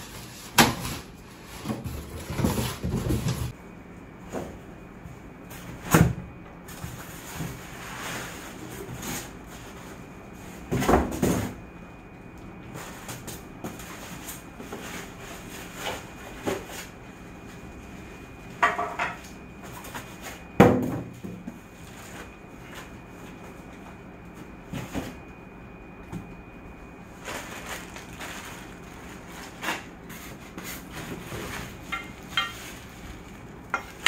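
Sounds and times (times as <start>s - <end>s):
rustling plastic and cardboard packaging: 0.0s - 3.5s, 27.0s - 34.0s.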